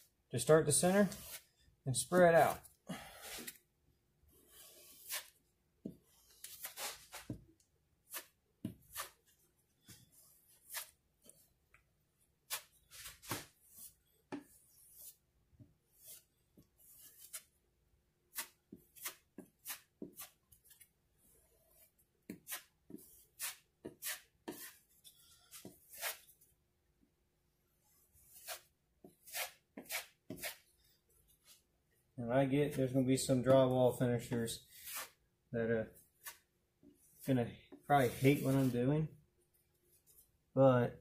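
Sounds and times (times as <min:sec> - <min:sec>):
putty knife scraping compound: 0:00.4 - 0:03.7, 0:04.3 - 0:11.6, 0:12.4 - 0:17.6, 0:18.3 - 0:26.4, 0:27.8 - 0:31.7, 0:34.2 - 0:38.9.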